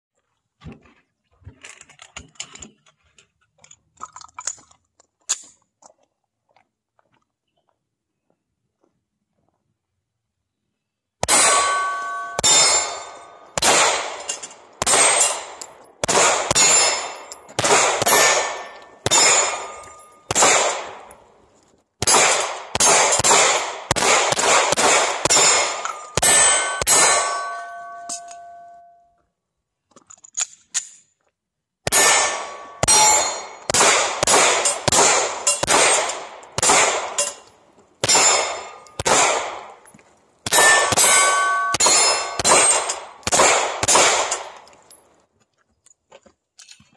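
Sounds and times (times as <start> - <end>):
handgun shots: 11.2 - 21.1, 22.0 - 28.5, 31.9 - 37.4, 38.0 - 39.8, 40.5 - 44.8
metallic ring of steel targets: 11.2 - 21.2, 24.8 - 29.1, 31.9 - 39.8, 40.5 - 45.0.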